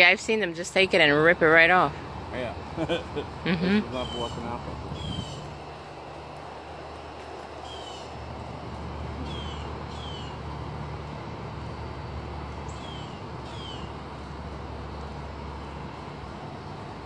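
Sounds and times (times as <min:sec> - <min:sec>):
bird whistling downward notes: 0:09.2 - 0:10.4.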